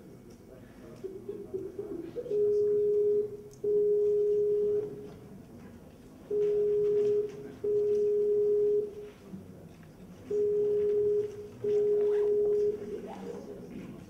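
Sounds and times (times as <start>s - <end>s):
video call ringing tone: 2.2s - 5.1s, 6.3s - 9.1s, 10.3s - 12.9s.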